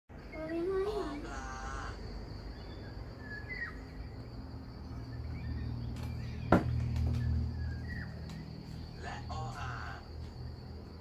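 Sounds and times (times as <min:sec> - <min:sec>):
high insect drone: 0:00.1 - 0:11.0.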